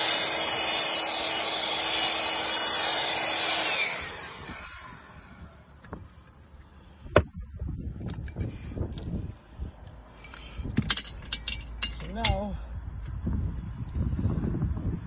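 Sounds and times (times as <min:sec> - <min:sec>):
metal clicks and clinks: 0:10.2 - 0:12.5.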